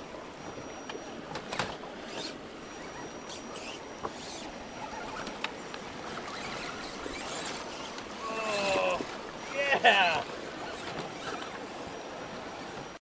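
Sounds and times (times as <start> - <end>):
electric motor high whine: 2.0 - 12.3.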